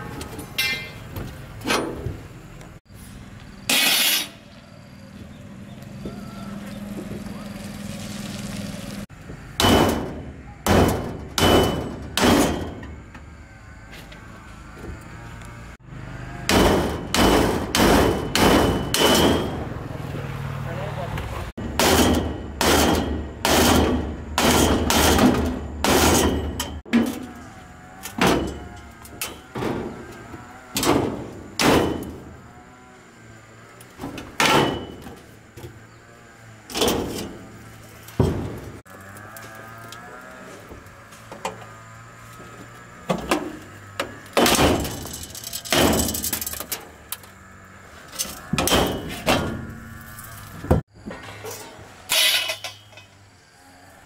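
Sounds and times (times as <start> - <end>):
engine hum: 0.0 - 54.0
metal banging on steel truck bed: 0.3 - 2.2, 9.6 - 13.1, 16.5 - 19.8, 21.6 - 27.3, 28.1 - 30.1, 30.7 - 32.3, 34.0 - 35.3, 36.7 - 37.4, 38.1 - 38.8, 43.1 - 47.0, 48.5 - 49.7.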